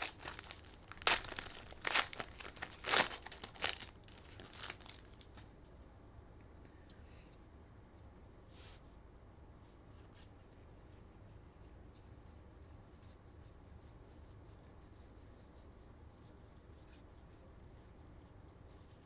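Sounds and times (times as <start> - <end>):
trading cards rustling and flicking: 0.0 - 5.5
low room hum: 0.0 - 19.0.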